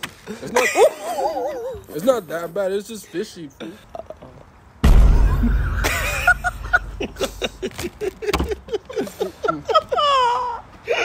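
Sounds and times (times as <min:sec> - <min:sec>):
young men laughing: 0:00.2 - 0:02.0, 0:03.1 - 0:04.5, 0:05.1 - 0:11.0
loud low rumble: 0:04.8 - 0:07.7.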